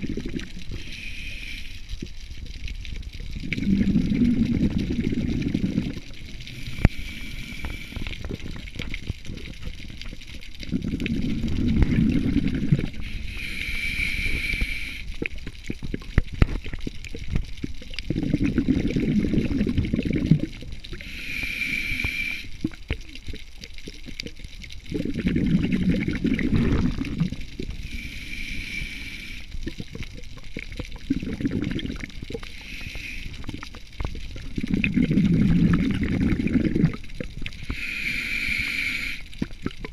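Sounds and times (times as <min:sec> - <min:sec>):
exhaled bubbles gurgling: 0:00.0 - 0:39.9
regulator inhale hiss: 0:00.4 - 0:02.0, 0:06.4 - 0:08.5, 0:12.8 - 0:15.3, 0:20.9 - 0:22.6, 0:27.7 - 0:29.7, 0:32.3 - 0:33.8, 0:37.6 - 0:39.5.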